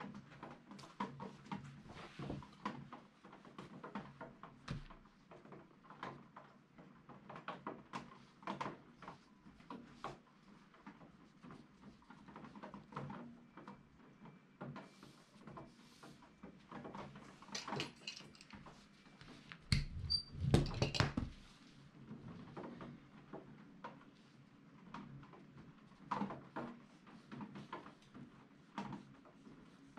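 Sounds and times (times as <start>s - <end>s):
thumps on table: 19.7s - 21.4s.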